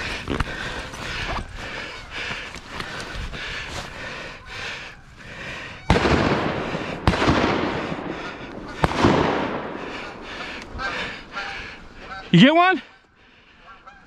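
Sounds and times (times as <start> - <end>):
shotgun shots echoing: 5.9 - 10.9.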